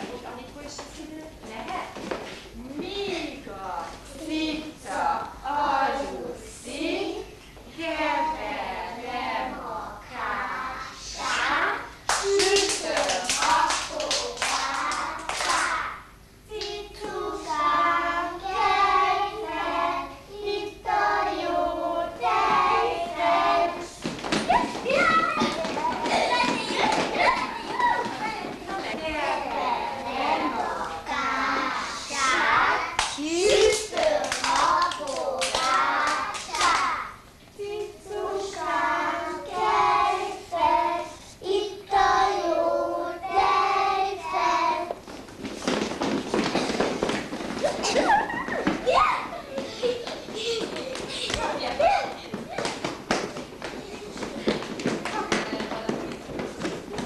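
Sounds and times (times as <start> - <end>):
children singing together: 4.8 - 24.1, 24.8 - 45.0.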